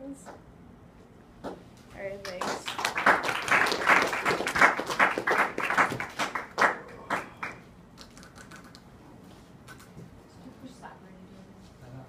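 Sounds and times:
people clapping: 2.2 - 8.8.

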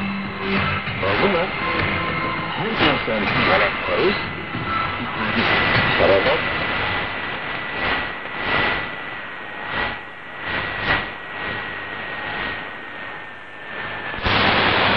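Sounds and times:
shortwave radio static hiss: 0.0 - 14.9.

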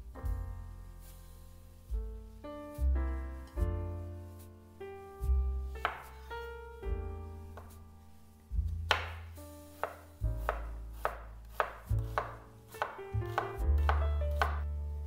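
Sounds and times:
background music: 0.0 - 15.0
knife chopping on wooden board: 5.8 - 6.2, 8.9 - 14.7.

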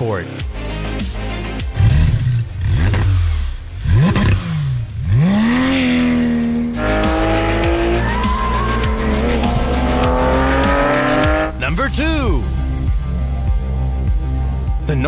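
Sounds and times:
car engine revving: 1.7 - 11.7
car accelerating: 1.8 - 11.6.

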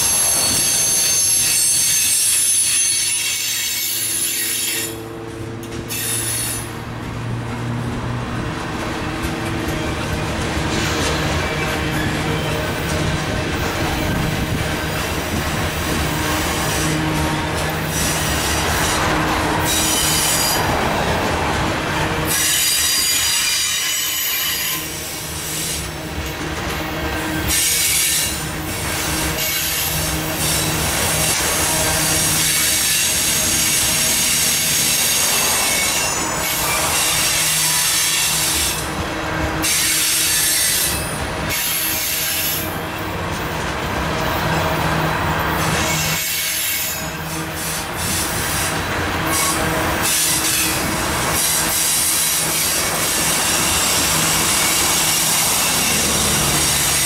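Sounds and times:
high-pitched wheel squeal: 0.0 - 5.1
train wheels rolling on rails: 0.0 - 57.0.

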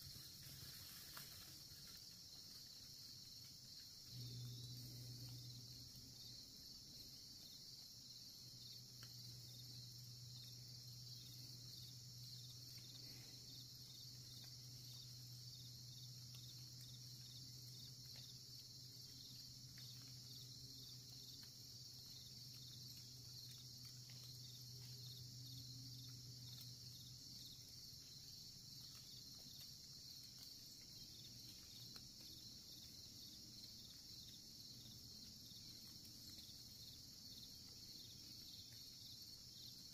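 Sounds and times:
crickets and insects chirping: 0.0 - 39.9
low steady hum: 0.0 - 39.9.

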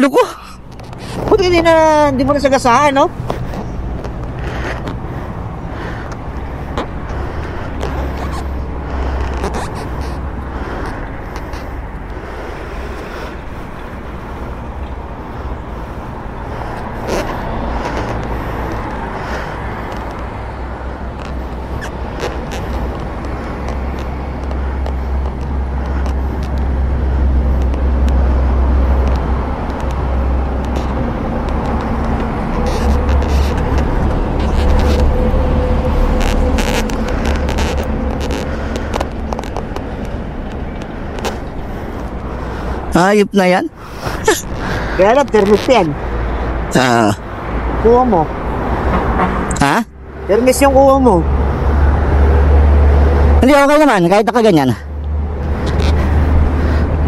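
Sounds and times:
vehicle engine idling: 0.5 - 43.1
camera mount clicks and rubbing: 0.7 - 1.3.

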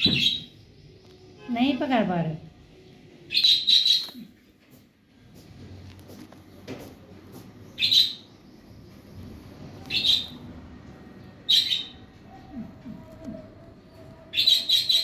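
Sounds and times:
parakeet chirping: 0.0 - 1.2, 3.2 - 4.3, 7.7 - 8.6, 9.8 - 10.5, 11.2 - 15.0.

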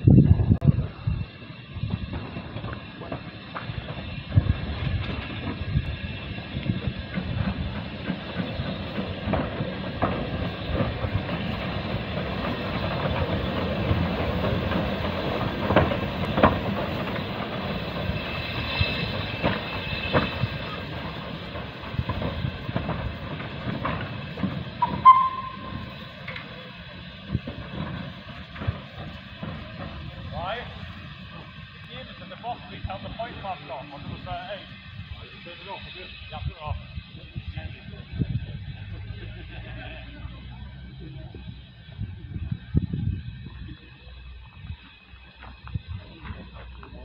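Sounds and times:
steam locomotive exhaust chuffs: 0.0 - 47.0
clanking running gear: 1.9 - 34.7
short whistle toot: 24.8 - 25.9.

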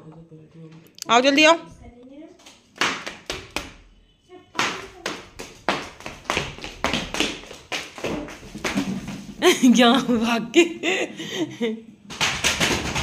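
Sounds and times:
footsteps on tiled floor: 4.6 - 10.5.

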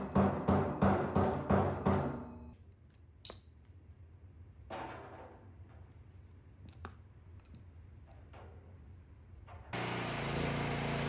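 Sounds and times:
hammer striking metal tank: 0.0 - 2.5.

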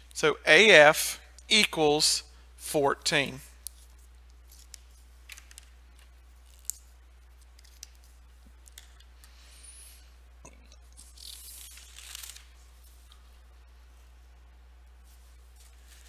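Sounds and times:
steady low hum: 0.0 - 16.0
paper rustling and scraping: 15.0 - 16.0.

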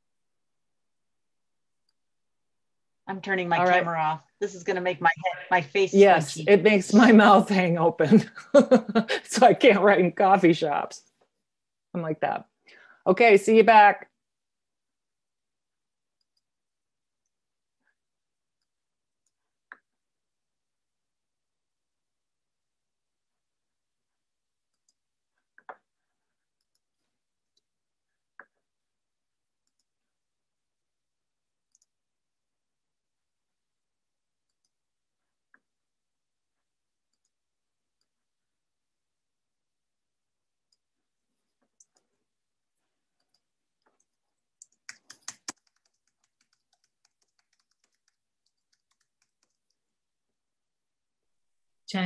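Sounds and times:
faint clicks and taps: 24.7 - 28.7, 40.6 - 50.0
typing on computer keyboard: 43.2 - 49.9.

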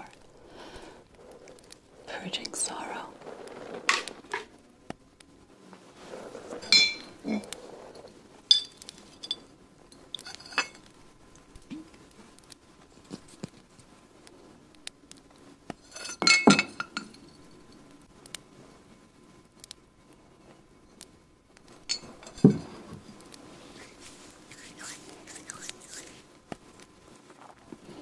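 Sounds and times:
small glassware clinking: 6.6 - 7.1, 8.5 - 9.5, 10.2 - 10.8, 15.9 - 17.4, 21.9 - 22.7.

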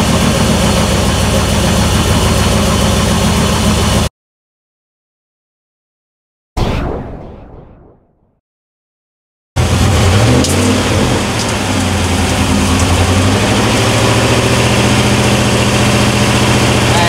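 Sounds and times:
car engine idling: 0.0 - 4.1, 9.6 - 17.0.

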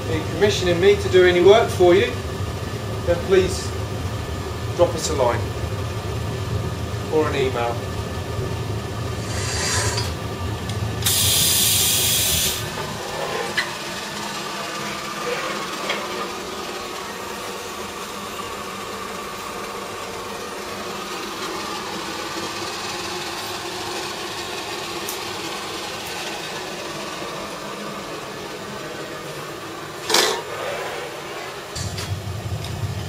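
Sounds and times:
furnace burner hiss and hum: 0.0 - 33.0.

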